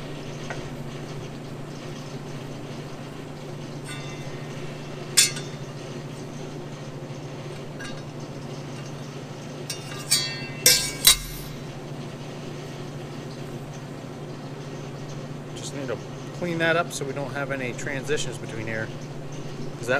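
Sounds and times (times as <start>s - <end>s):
steady low hum: 2.5s - 12.9s
steel parts clinking: 5.2s - 5.6s, 7.7s - 8.2s, 9.6s - 11.7s.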